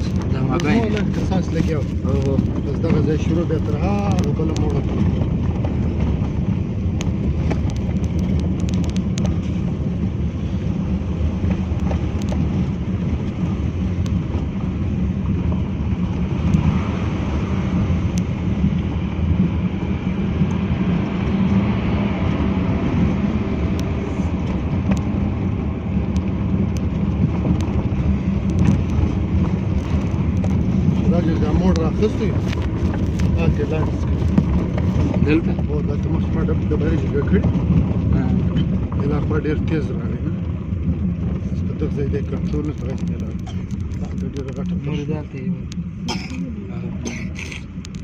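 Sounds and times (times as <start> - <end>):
faint clicks and rattles: 0.0 - 14.7, 26.0 - 46.4, 47.3 - 48.0
car engine and tyres rumbling: 0.0 - 48.0.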